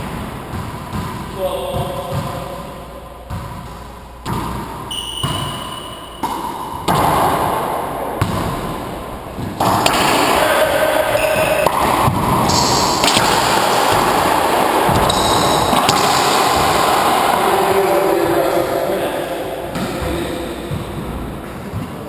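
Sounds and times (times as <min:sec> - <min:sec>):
racquetball ball impacts echoing: 0:00.0 - 0:22.0
short squeak: 0:04.9 - 0:06.2.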